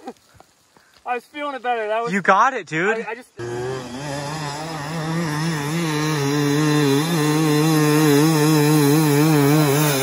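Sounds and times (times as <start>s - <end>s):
dirt bike engine revving: 3.4s - 10.0s.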